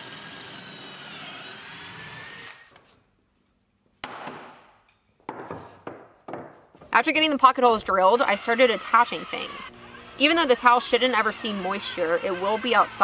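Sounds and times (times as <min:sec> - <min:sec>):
cordless drill whirring: 0:00.0 - 0:02.7, 0:07.9 - 0:13.0
sharp knock: 0:04.0 - 0:04.7.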